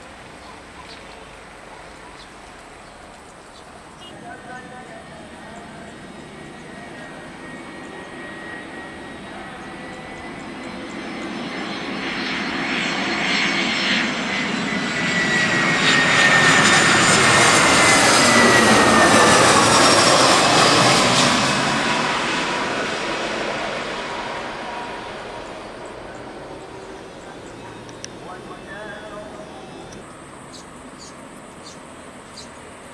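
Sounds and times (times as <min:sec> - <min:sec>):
jet airliner passing overhead: 0:00.0 - 0:32.9
jet engine whine: 0:00.0 - 0:32.9.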